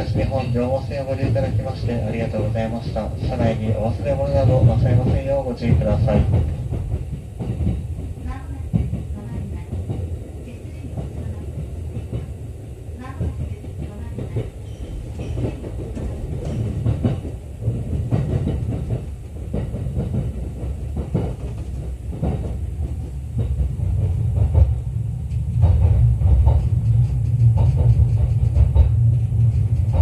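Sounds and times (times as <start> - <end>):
train running rumble: 0.0 - 30.0
wheels clacking over rails: 13.0 - 24.8.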